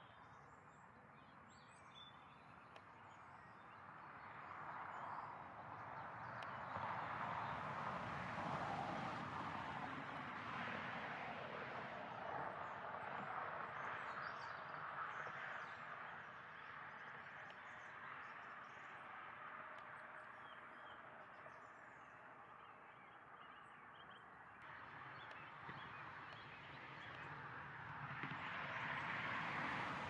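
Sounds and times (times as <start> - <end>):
small birds chirping: 14.0 - 27.4.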